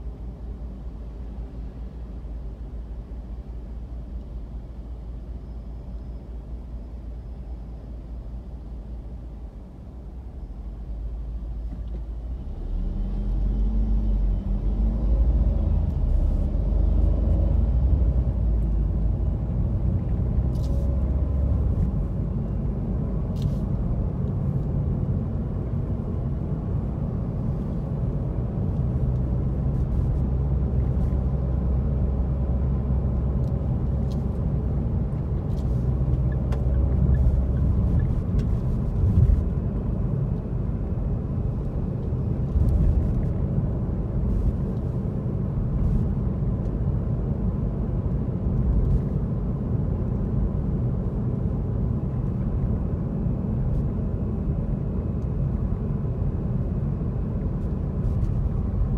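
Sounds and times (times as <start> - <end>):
car cabin rumble: 33.0 - 58.9.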